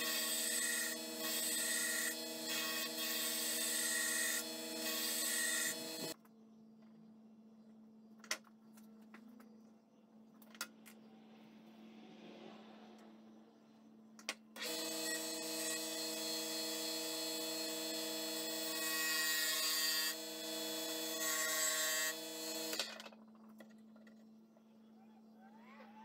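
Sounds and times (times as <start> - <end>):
lathe motor whine: 0.0 - 6.2, 14.6 - 23.0
tool cutting spinning wood: 0.0 - 6.2, 14.6 - 23.2.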